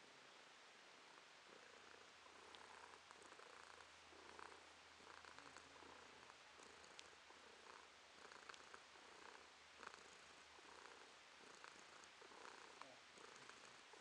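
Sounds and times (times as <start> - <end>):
cat purring: 1.0 - 14.0.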